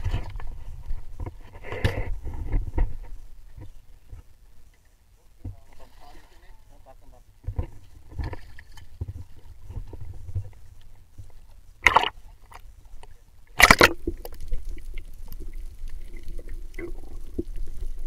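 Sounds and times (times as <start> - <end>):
muffled underwater sound: 5.1 - 8.3
water sloshing and splashing: 5.5 - 6.6, 7.5 - 10.8, 11.8 - 12.6, 13.5 - 18.0
loud splashes: 11.8 - 12.2, 13.6 - 14.0.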